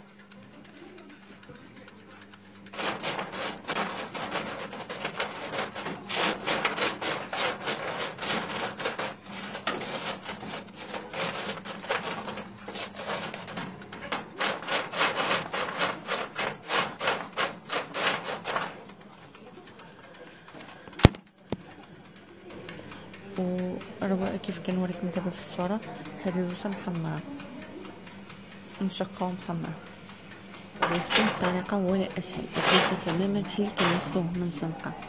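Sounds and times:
almonds rattling on baking tray: 0:02.8 - 0:18.8, 0:30.8 - 0:35.0.

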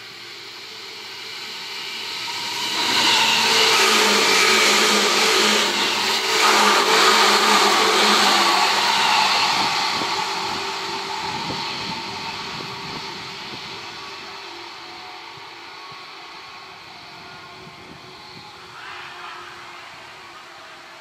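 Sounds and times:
electric train passing at speed: 0:00.0 - 0:21.0.

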